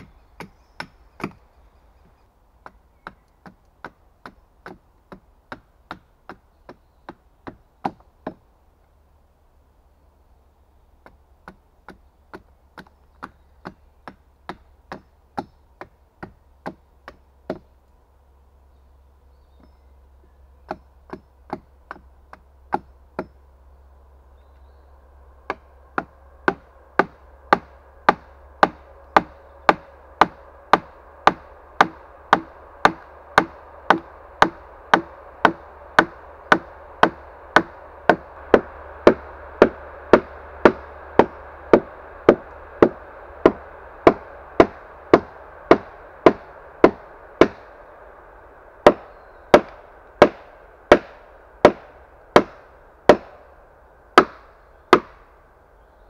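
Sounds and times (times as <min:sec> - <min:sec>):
axe chopping wood: 0:00.0 - 0:01.4, 0:02.6 - 0:08.4, 0:20.7 - 0:23.3, 0:25.5 - 0:47.6, 0:48.8 - 0:53.3, 0:54.2 - 0:55.2.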